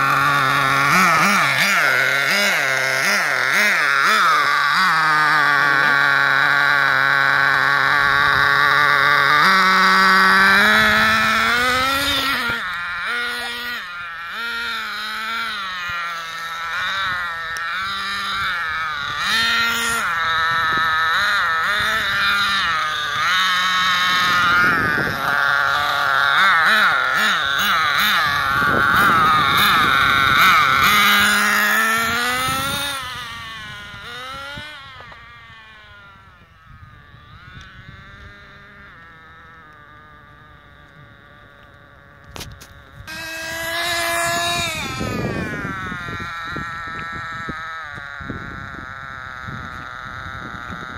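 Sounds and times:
small engine revving whine: 0.0 - 50.9.

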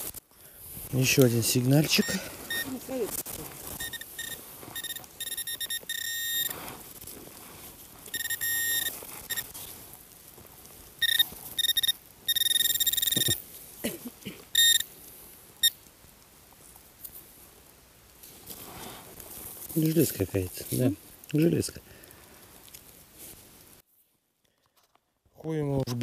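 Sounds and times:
metal detector beeping: 1.8 - 2.8, 3.7 - 6.6, 8.1 - 9.5, 11.0 - 13.4, 14.6 - 14.9.

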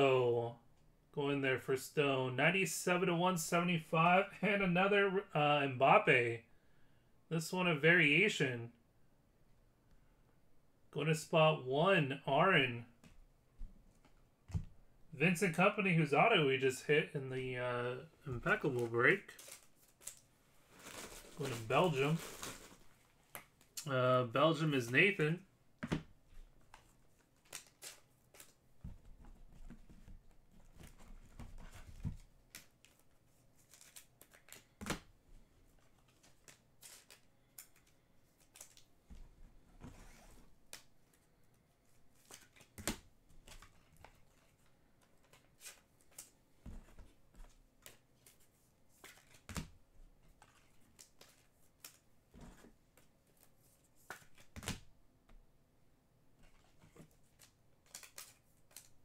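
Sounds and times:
cards and wrappers rustling: 15.4 - 38.9, 39.8 - 54.9, 56.4 - 59.0.

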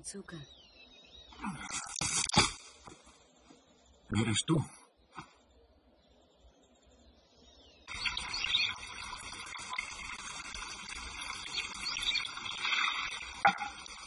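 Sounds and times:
insects and birds chirping: 0.0 - 14.0
hollow bamboo knock on stone: 13.4 - 13.8.

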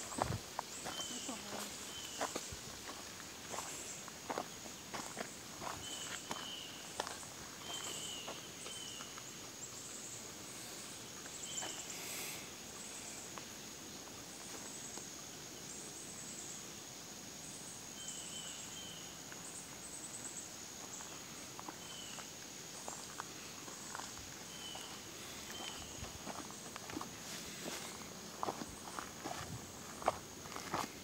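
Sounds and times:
footsteps on leaves: 0.0 - 9.1, 22.8 - 31.0
high insect drone: 0.0 - 31.0
bird chirping: 4.4 - 11.9, 23.8 - 26.5.

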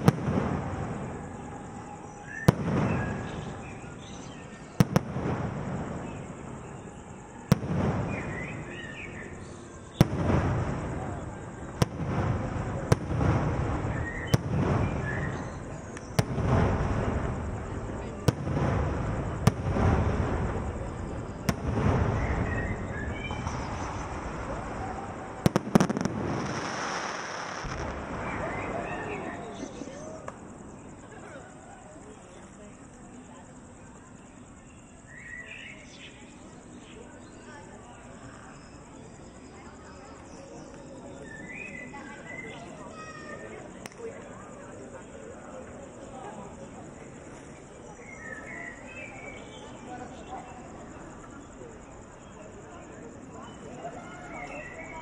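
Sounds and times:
fireworks bursting: 0.0 - 31.1.

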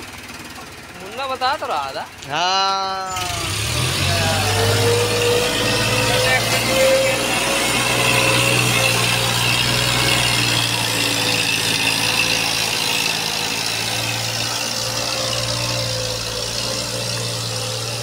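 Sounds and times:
tractor diesel engine running: 0.0 - 18.0.

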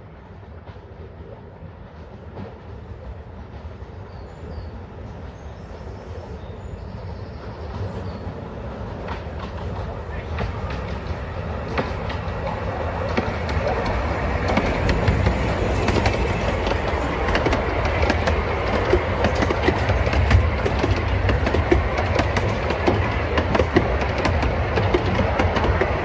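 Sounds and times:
steam locomotive passing: 0.0 - 26.0
carriages rumbling: 7.6 - 26.0
wheels clicking over rail joints: 8.8 - 26.0.

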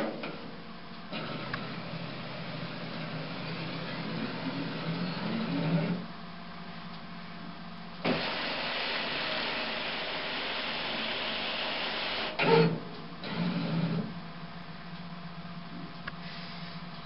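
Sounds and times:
plotter paper feed running: 1.1 - 6.1, 8.0 - 14.2.

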